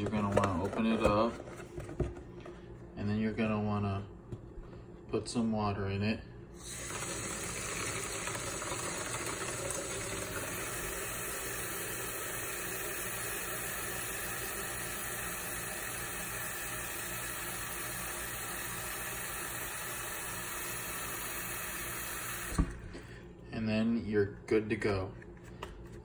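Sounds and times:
tap water running into a box: 6.6 - 22.7.

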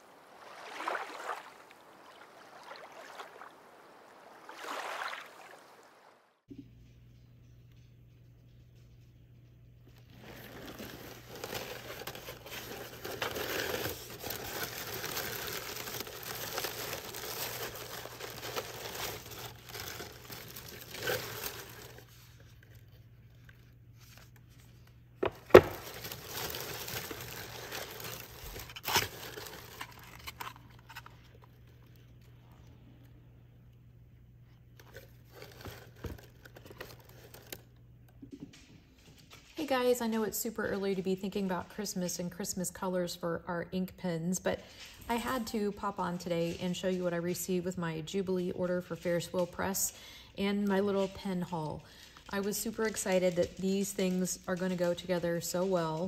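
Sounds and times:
packing paper crinkling: 10.2 - 32.1, 34.8 - 37.8, 50.7 - 56.0.

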